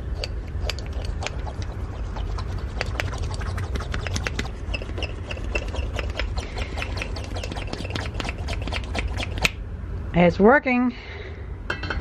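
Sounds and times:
metal clicks and scrapes: 0.0s - 9.6s
steady low hum: 0.0s - 12.0s.

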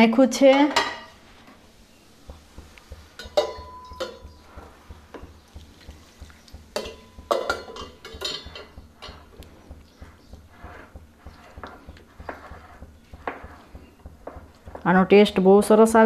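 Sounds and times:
whisk clinking against glass bowl: 2.3s - 14.5s.

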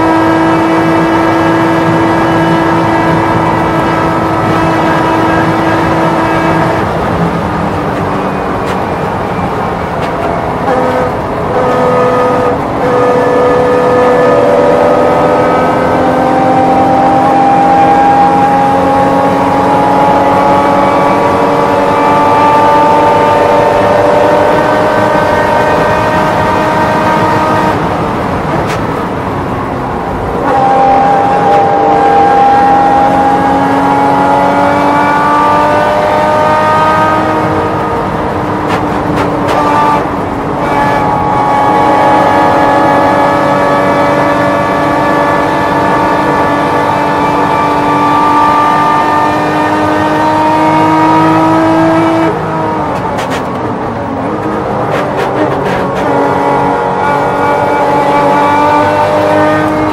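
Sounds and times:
race car engine at high revs: 0.0s - 59.9s
wind rush: 0.0s - 59.9s.

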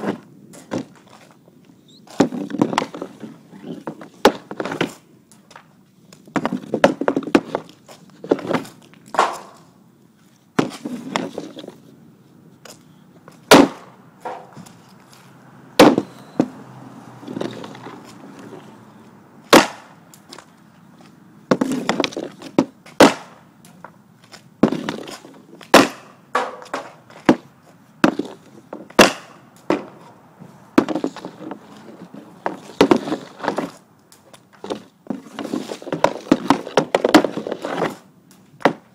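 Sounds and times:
hockey stick scraping puck: 0.0s - 1.3s, 2.0s - 5.7s, 6.3s - 9.7s, 10.6s - 11.9s, 12.7s - 30.2s, 30.8s - 38.9s
pucks hitting plywood board: 0.0s - 1.3s, 2.1s - 9.7s, 10.6s - 11.8s, 12.7s - 15.2s, 15.8s - 18.7s, 19.5s - 30.2s, 30.8s - 38.9s
sharp crack of hockey shot: 9.1s - 9.7s, 13.5s - 14.5s, 19.5s - 20.0s, 23.0s - 23.4s, 25.7s - 27.0s, 29.0s - 29.9s.

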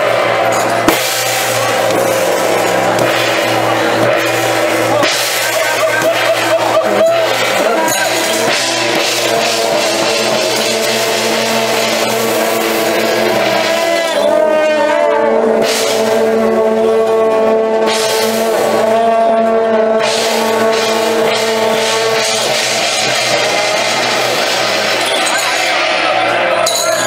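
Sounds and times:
suona shawms blaring: 0.0s - 17.5s
clashing cymbals: 0.0s - 27.0s
gongs: 0.0s - 27.0s.

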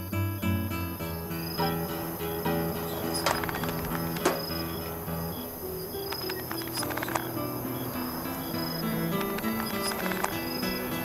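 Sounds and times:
crickets chirping: 0.0s - 11.0s
slow low film score: 0.0s - 11.0s
sharp knock: 1.6s - 4.9s.

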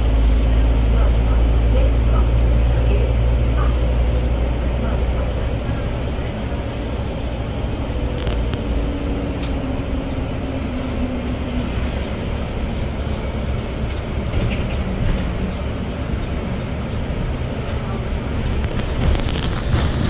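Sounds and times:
bus engine and road rumble: 0.0s - 20.0s.

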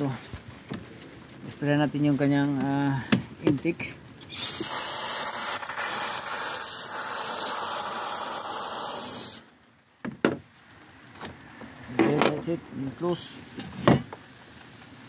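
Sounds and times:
aerosol can spraying hiss: 4.3s - 9.4s.

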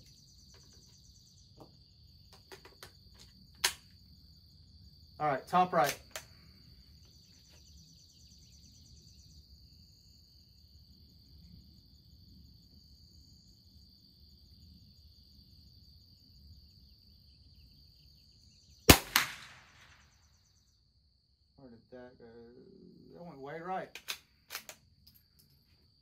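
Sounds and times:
rifle shot: 18.9s - 20.1s.

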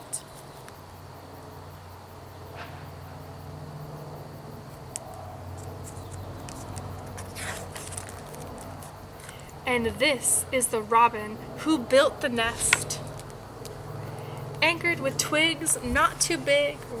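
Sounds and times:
book page turning: 5.8s - 9.4s.

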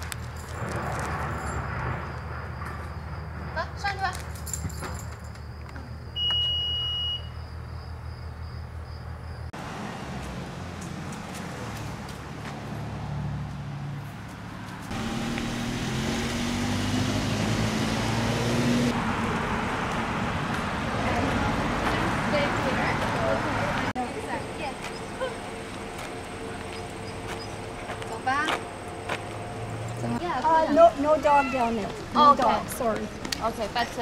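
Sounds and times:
road rumble: 0.0s - 34.0s
high electronic beep: 6.1s - 7.5s
car engine hum: 9.5s - 31.2s.

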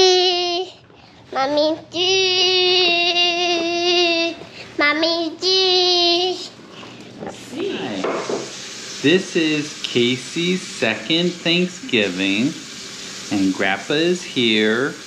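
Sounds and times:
toddler singing held notes: 1.4s - 6.5s.

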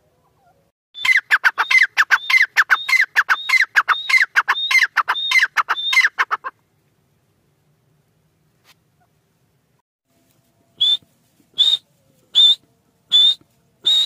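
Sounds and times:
bird calling shrill phrases: 0.4s - 6.5s, 11.6s - 14.0s.

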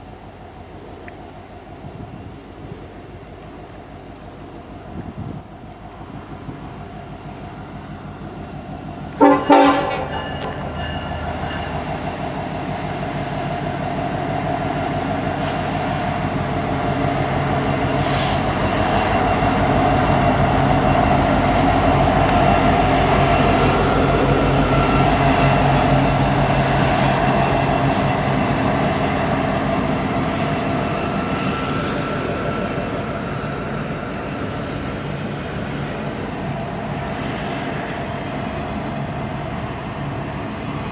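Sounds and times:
container cars rolling by: 4.8s - 40.9s
locomotive engine passing: 5.5s - 40.9s
locomotive horn blast: 9.2s - 10.8s.

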